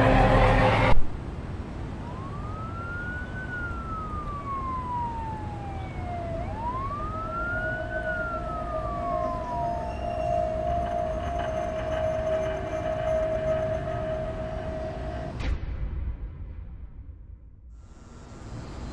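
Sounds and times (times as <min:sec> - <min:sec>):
siren wailing: 0:01.8 - 0:15.4
steady tone: 0:01.8 - 0:15.7
low rumble: 0:03.4 - 0:17.7.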